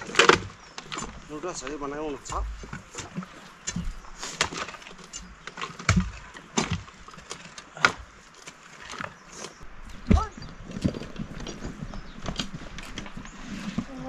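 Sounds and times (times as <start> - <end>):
wood knocking and cracking: 0.0 - 9.2.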